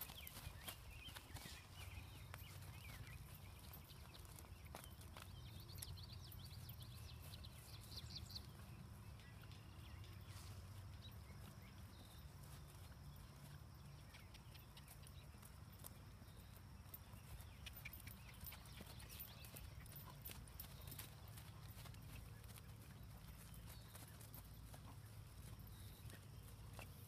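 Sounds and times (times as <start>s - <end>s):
hoofbeats on grass: 0.0s - 27.0s.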